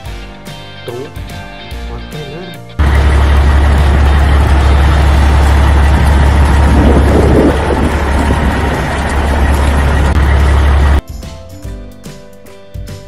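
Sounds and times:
engine running with low drone: 2.8 - 11.0.

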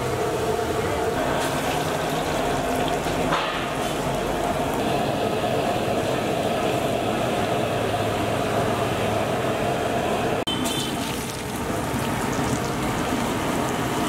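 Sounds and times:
deep-frying sizzle in oil: 0.0 - 9.7, 10.5 - 14.0.

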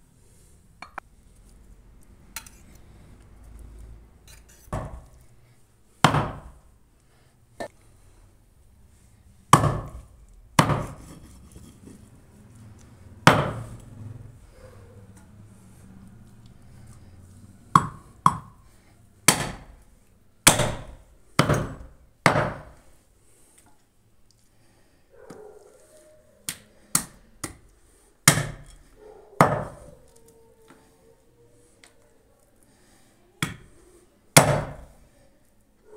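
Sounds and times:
cleaver chopping on wooden block: 4.7 - 5.2, 6.0 - 6.6, 9.5 - 11.2, 13.2 - 13.7, 17.7 - 18.6, 19.3 - 19.8, 20.4 - 22.8, 26.5 - 27.6, 28.2 - 28.8, 29.4 - 29.9, 33.4 - 33.7, 34.4 - 34.9.

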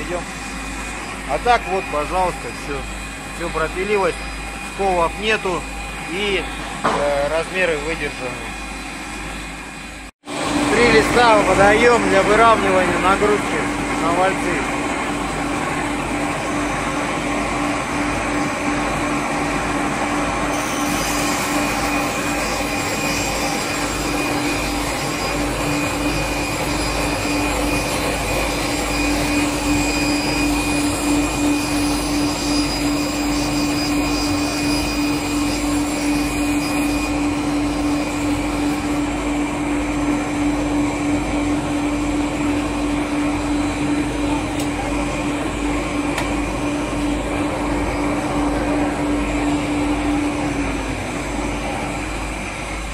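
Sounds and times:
circular saw humming: 0.0 - 52.9
hiss of saw cutting: 20.5 - 39.0.

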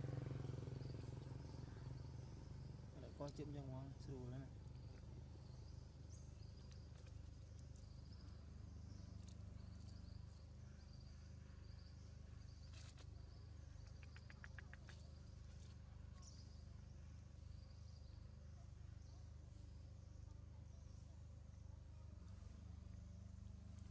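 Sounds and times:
insects chirping: 0.1 - 18.4
quick ticks: 13.7 - 15.1.

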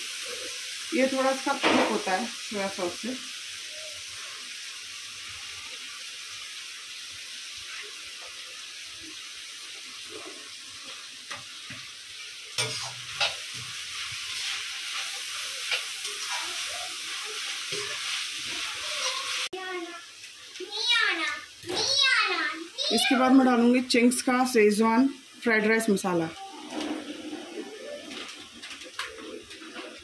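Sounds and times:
vegetables sizzling in a pan: 0.0 - 30.0
metal spatula scraping a pan: 12.6 - 19.5, 26.5 - 30.0.

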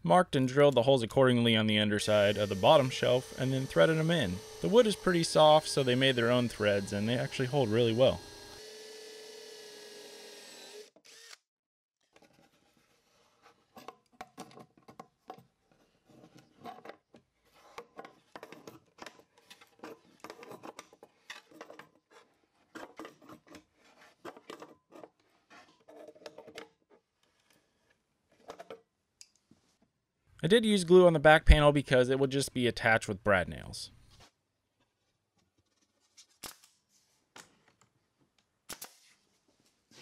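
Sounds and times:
cordless drill running: 2.0 - 11.4.

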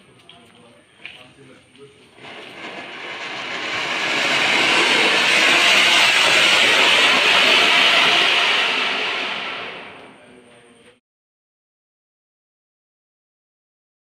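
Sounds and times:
firework spraying sparks with hiss: 2.1 - 10.3.

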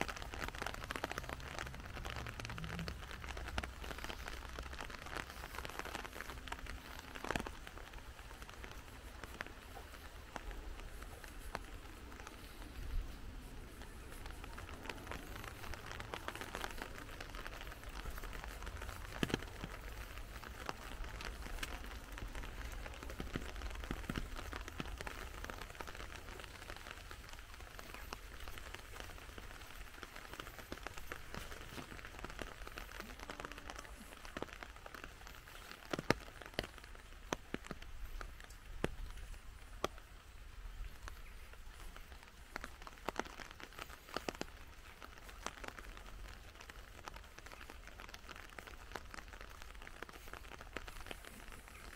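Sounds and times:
light rain pattering: 0.0 - 51.9.

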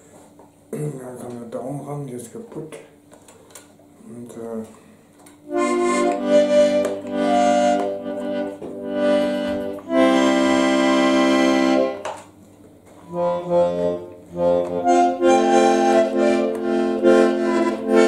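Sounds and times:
button accordion playing chords: 5.4 - 12.3, 13.0 - 18.0.

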